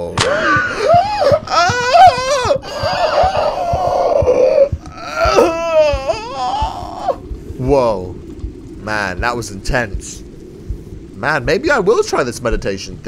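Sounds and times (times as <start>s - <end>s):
man wailing: 0.2s - 7.3s.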